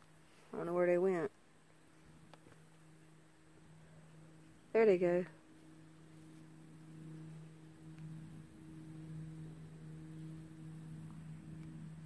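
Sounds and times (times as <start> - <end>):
background hiss: 0.0 - 12.0
boat motor humming: 1.9 - 12.0.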